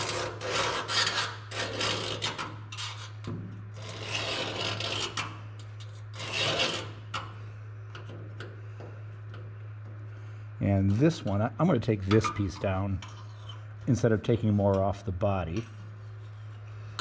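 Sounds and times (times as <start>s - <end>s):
scribe scratching sheet metal: 0.0s - 7.2s
steady low hum: 0.0s - 17.0s.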